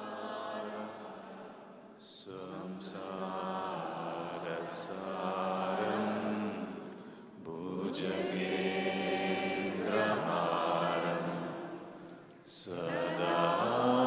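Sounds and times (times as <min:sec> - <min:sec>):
mantra chanted in long notes: 0:02.0 - 0:06.7, 0:12.4 - 0:14.0.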